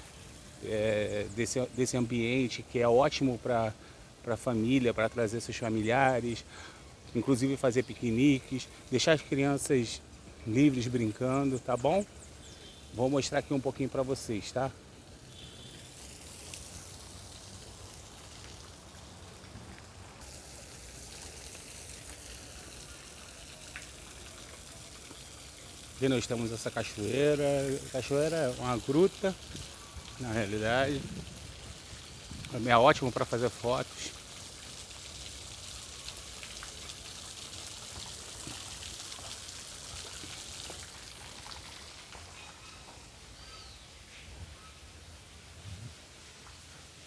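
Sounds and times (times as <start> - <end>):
waterfall splashing into pond: 14.8 - 42.6.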